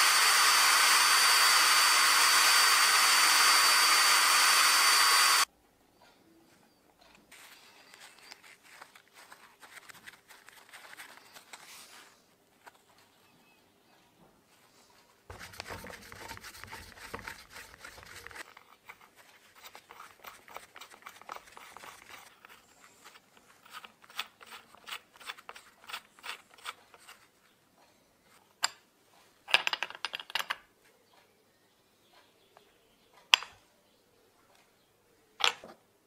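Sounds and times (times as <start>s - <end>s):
glove rustle: 7.3s - 13.0s.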